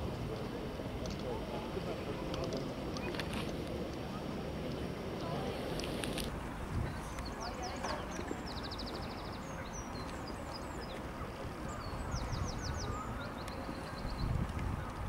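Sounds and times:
low wind rumble on microphone: 0.0 - 15.0
songbirds trilling and chirping: 6.2 - 15.0.

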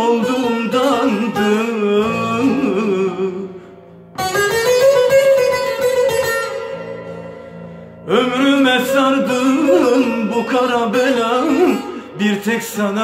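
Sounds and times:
person singing: 0.0 - 3.8, 8.0 - 13.0
long-necked lute strumming: 0.0 - 13.0.

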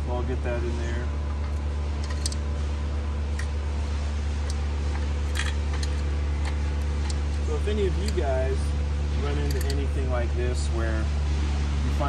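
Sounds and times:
low background hum: 0.0 - 12.0
metallic clicks of chainsaw chain: 9.4 - 9.9.

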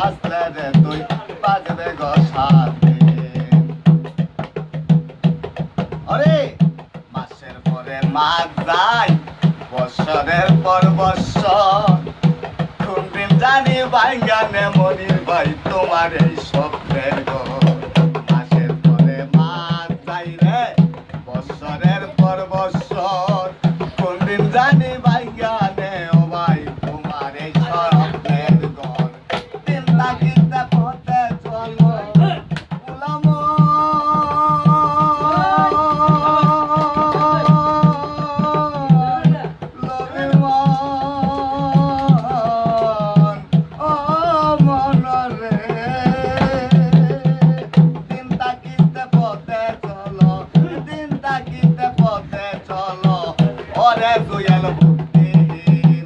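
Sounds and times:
hand drum rhythm: 0.0 - 56.0
man singing held notes: 6.0 - 56.0.

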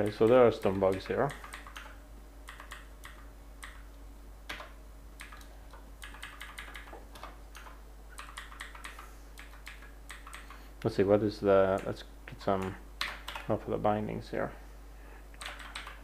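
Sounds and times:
keyboard keys tapping: 0.0 - 3.8, 4.5 - 10.6, 11.7 - 13.5, 15.4 - 16.0
faint low hum: 0.0 - 16.0.

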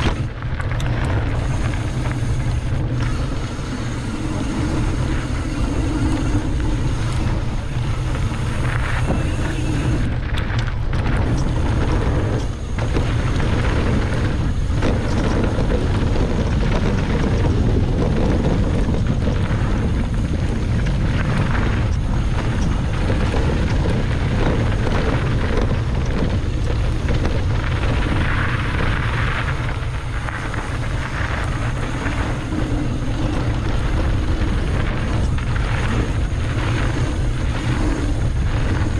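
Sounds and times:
mountain bike rumble and rattle: 0.0 - 38.9
wind buffeting microphone: 0.0 - 38.9.

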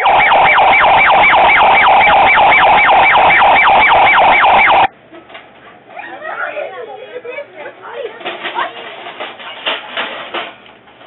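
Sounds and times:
electronic yelp siren: 0.0 - 4.9.

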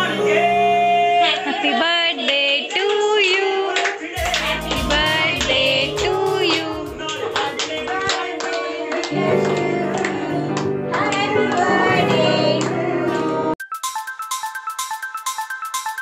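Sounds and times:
people singing a birthday song: 0.0 - 13.6
hands clapping in time: 2.8 - 12.8
music with low notes: 4.2 - 7.6.

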